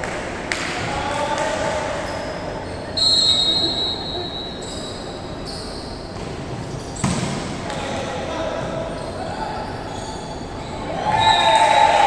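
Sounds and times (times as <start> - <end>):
referee's whistle: 3.0 - 5.9, 11.1 - 11.7.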